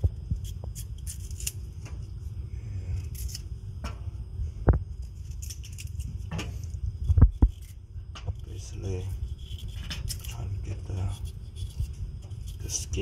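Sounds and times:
knife scraping vegetable skin: 0.4 - 1.7, 3.0 - 3.4, 5.0 - 6.3, 8.4 - 13.0.

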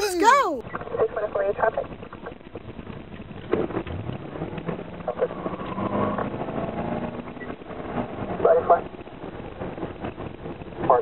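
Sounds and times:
road noise: 3.1 - 10.4.

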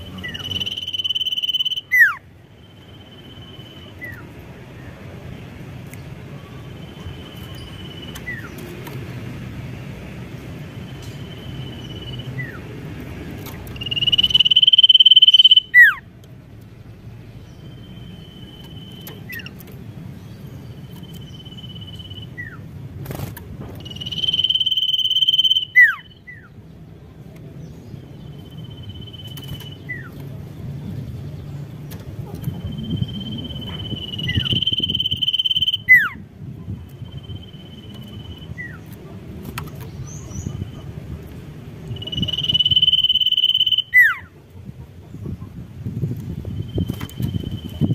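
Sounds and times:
bird trilling: 0.0 - 4.2, 13.5 - 16.1, 23.8 - 26.5, 32.4 - 36.2, 41.9 - 44.3.

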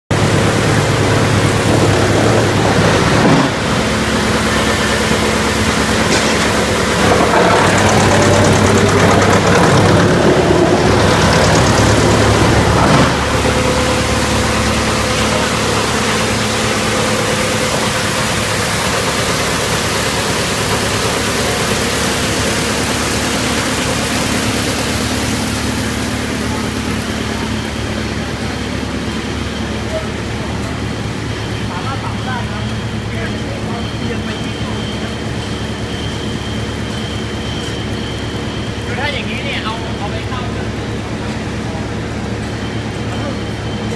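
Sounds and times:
wood chipper chipping wood: 0.2 - 31.5.

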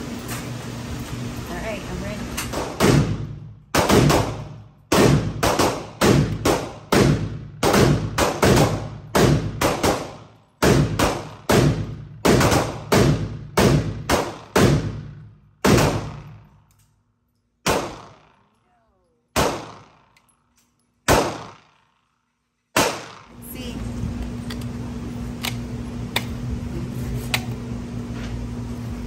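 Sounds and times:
echoing gunshots: 2.5 - 16.6, 17.6 - 18.5, 19.3 - 20.2, 21.0 - 23.4.

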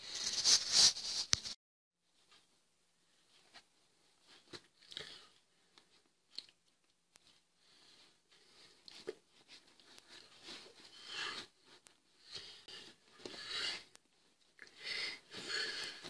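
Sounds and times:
hands brushing together: 0.1 - 1.6.

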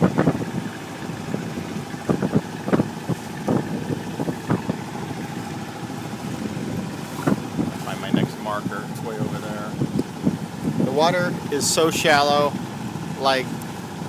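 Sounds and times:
short knocks and buffets: 0.0 - 10.9
boat diesel engine running: 0.0 - 14.0
water rushing: 0.0 - 14.0
wind: 0.0 - 14.0.

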